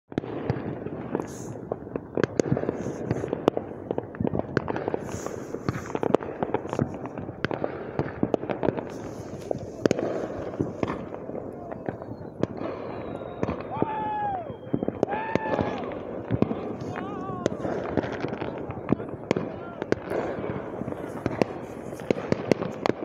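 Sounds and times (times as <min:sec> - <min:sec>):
fireworks bangs and crackles: 0:00.1 - 0:23.0.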